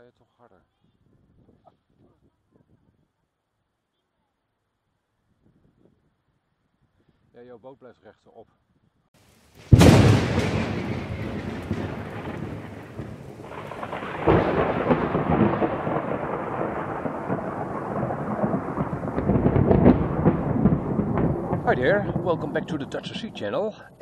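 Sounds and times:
thunder crack and rumble: 0:09.7 - 0:24.0.

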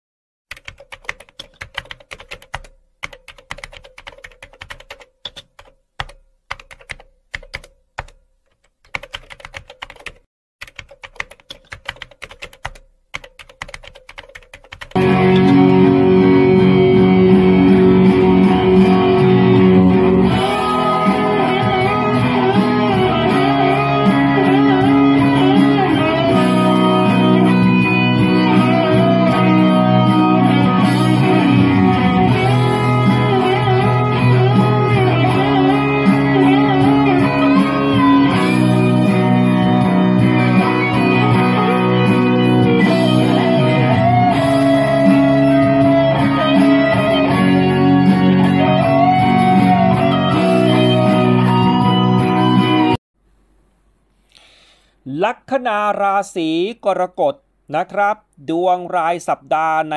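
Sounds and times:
rapid keyboard-like clicking: 0:00.5 - 0:15.0
loud electric guitar music: 0:15.0 - 0:53.0.

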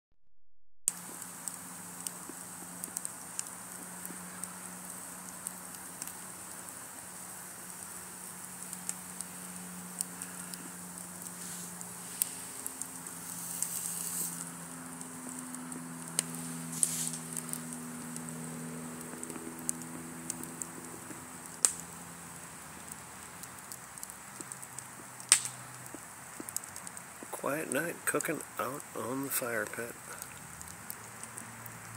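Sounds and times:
sharp pops: 0:00.9 - 0:22.0, 0:22.8 - 0:31.8
faint hiss: 0:00.9 - 0:31.9
wood fire crackling: 0:00.9 - 0:31.9.

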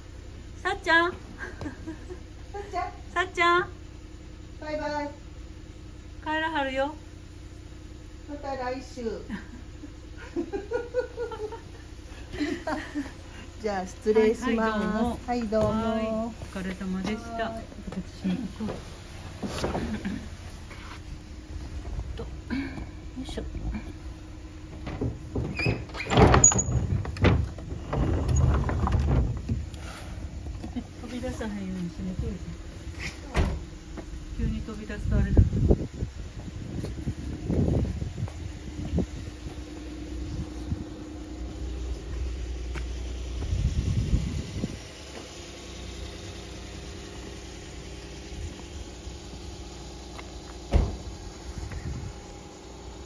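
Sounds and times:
car engine running: 0:00.0 - 0:53.0
wooden sliding door scraping: 0:24.8 - 0:30.4.

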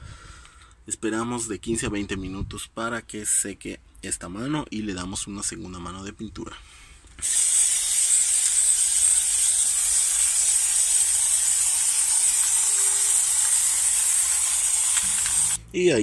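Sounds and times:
spray can hissing: 0:07.2 - 0:15.6.

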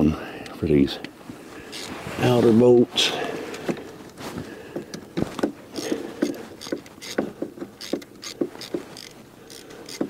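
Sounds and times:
hand ratchet clicking: 0:01.7 - 0:01.9, 0:05.7 - 0:10.0.

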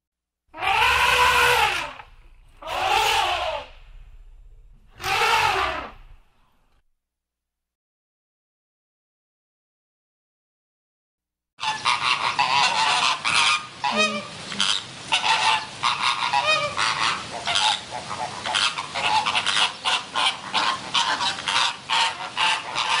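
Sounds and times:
flamingos honking: 0:00.5 - 0:06.4, 0:11.6 - 0:23.0.

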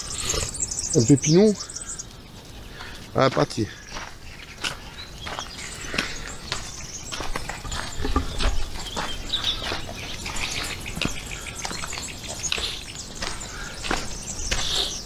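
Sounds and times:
footsteps on stony trail: 0:01.3 - 0:15.0.

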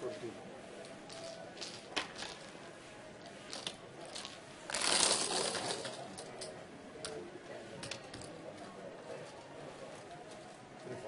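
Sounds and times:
chips swept together rattle: 0:03.5 - 0:06.2
chips clicking and clattering: 0:03.5 - 0:06.5.

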